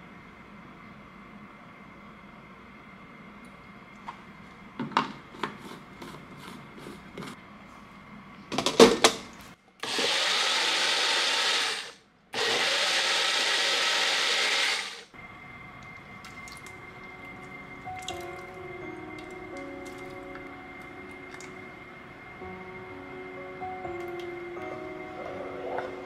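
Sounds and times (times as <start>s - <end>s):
blender motor whirring: 9.8s - 15.1s.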